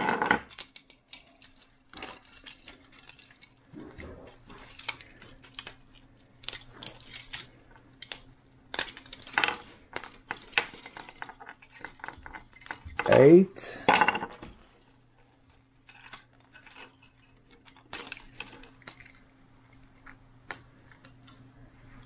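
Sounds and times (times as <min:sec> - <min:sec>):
plastic pieces clacking: 0:00.0 - 0:13.2.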